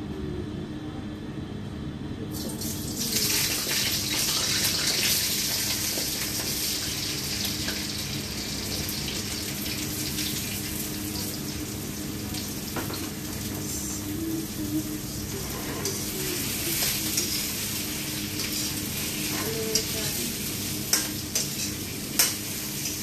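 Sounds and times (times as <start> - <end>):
vegetables sizzling in hot oil: 2.7 - 23.0.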